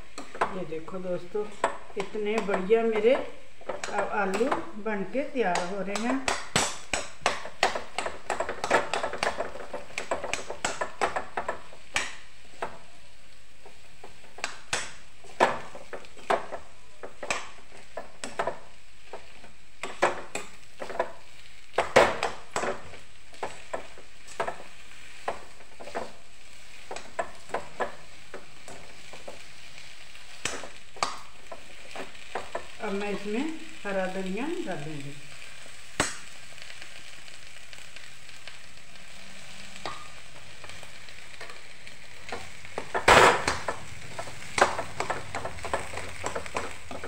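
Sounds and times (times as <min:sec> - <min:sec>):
low sizzle: 0:00.0 - 0:47.0.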